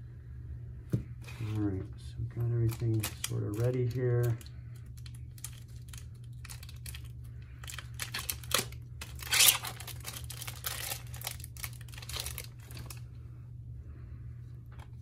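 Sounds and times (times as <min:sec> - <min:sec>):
steady low hum: 0:00.0 - 0:15.0
packaging crinkling and tearing: 0:02.3 - 0:13.0.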